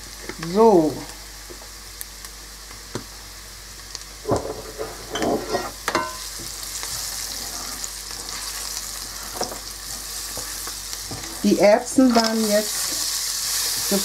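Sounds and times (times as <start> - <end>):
food sizzling in hot oil: 0.0 - 14.0
wooden spoon scraping a pan: 4.3 - 6.1, 6.8 - 14.0.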